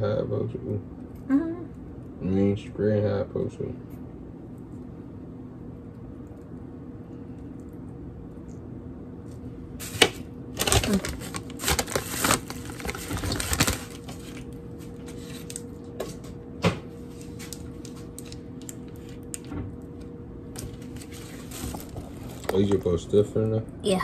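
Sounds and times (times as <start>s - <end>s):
snack packaging crinkling: 9.2s - 16.3s, 17.1s - 23.5s.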